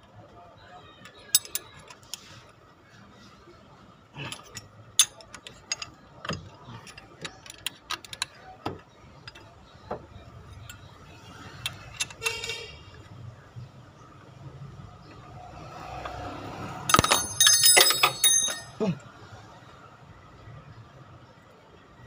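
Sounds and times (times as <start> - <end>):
ringing metal clink: 1.2 - 2.0, 16.9 - 18.9
wrench clicking on metal: 1.3 - 2.2.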